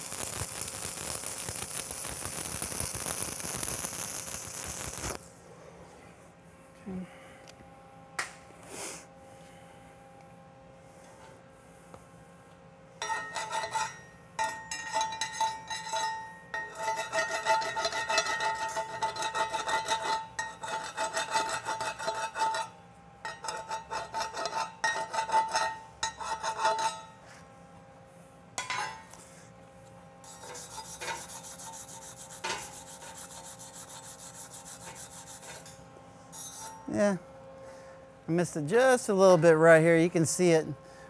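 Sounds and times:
wire brush scrubbing steel plate: 0:13.0 - 0:22.7, 0:30.3 - 0:35.8.

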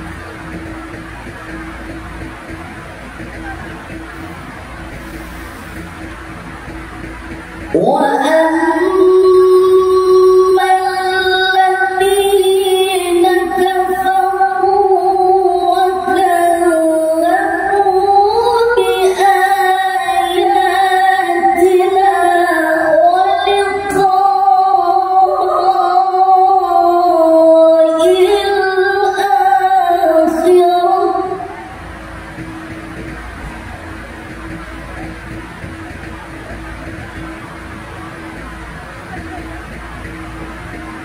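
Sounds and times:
man chanting through microphone: 0:07.7 - 0:31.8.

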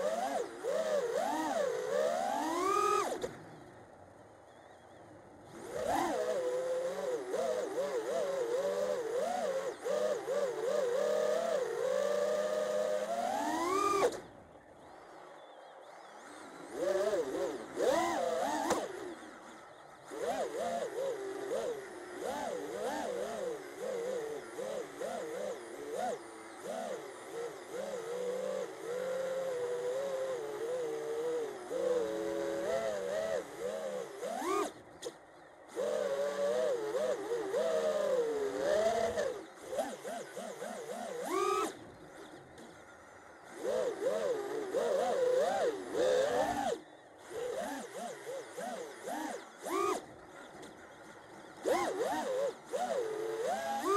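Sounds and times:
quadcopter motors whining: 0:00.0 - 0:53.9.

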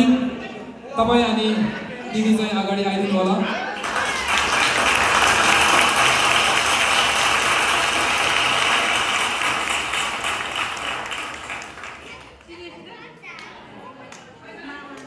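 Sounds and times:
audience applauding: 0:03.6 - 0:12.6.

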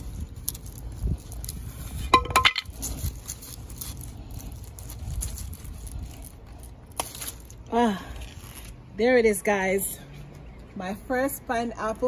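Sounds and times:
stiff leaves rustling and crackling: 0:00.0 - 0:09.2
handling noise: 0:02.0 - 0:04.0.

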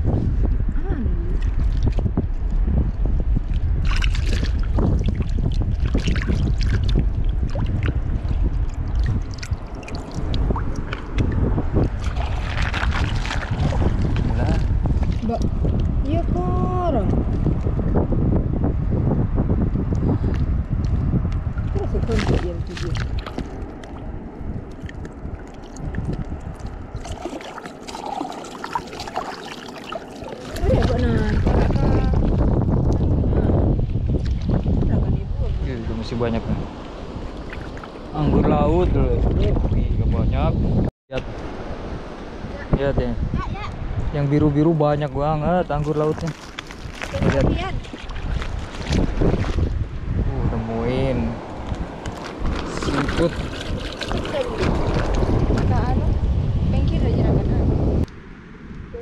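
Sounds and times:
wind buffeting microphone: 0:00.0 - 0:59.0
water sloshing: 0:01.1 - 0:02.6, 0:03.4 - 0:16.3, 0:21.5 - 0:38.3, 0:45.4 - 0:49.8, 0:51.0 - 0:56.1
small splashes: 0:01.3 - 0:02.1, 0:03.5 - 0:15.9, 0:21.6 - 0:33.1, 0:34.2 - 0:34.8, 0:37.2 - 0:38.2, 0:45.6 - 0:49.8, 0:51.7 - 0:55.8.

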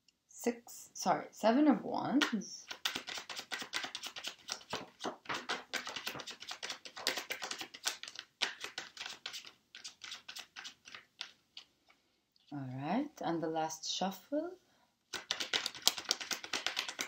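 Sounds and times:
cards being shuffled: 0:02.2 - 0:11.7, 0:15.1 - 0:17.0.

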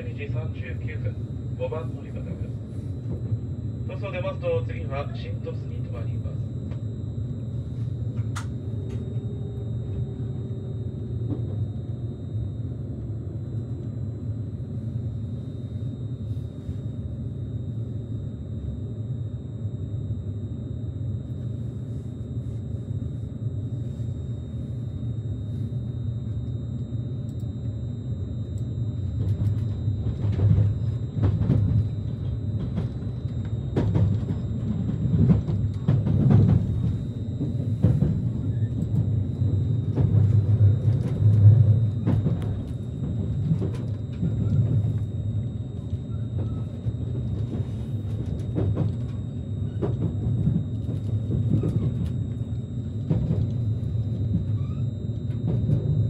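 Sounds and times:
train wheels rumbling: 0:29.3 - 0:45.0.

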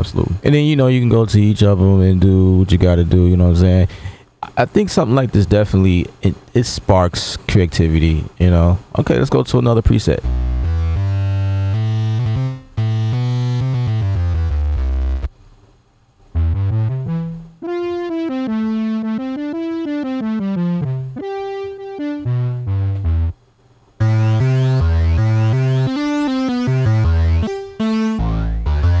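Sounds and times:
synthesizer melody with deep bass: 0:10.2 - 0:15.3, 0:16.4 - 0:23.4, 0:24.0 - 0:29.0
synthesizer rising sweeps: 0:24.0 - 0:29.0.

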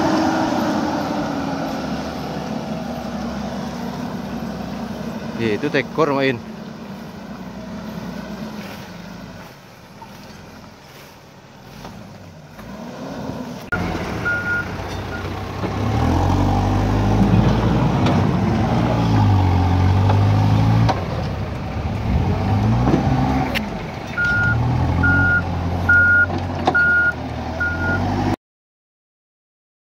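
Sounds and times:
backhoe diesel engine revving: 0:00.0 - 0:28.4
pickup truck engine labouring: 0:00.0 - 0:28.4
reversing alarm beeping: 0:14.2 - 0:15.3, 0:24.2 - 0:28.0.

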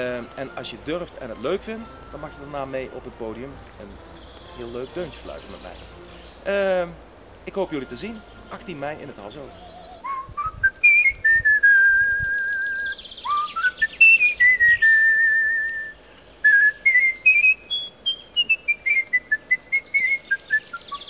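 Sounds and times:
person whistling a melody: 0:09.4 - 0:21.0.

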